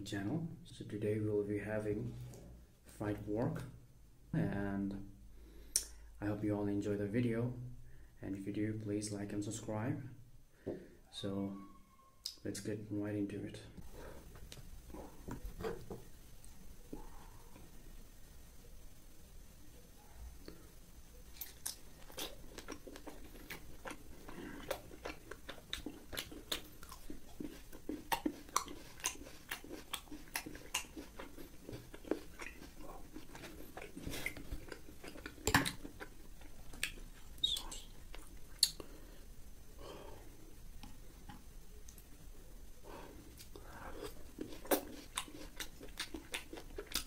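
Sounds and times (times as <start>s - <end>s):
crunching and chewing crispy food: 21.3s - 39.0s, 43.3s - 47.0s.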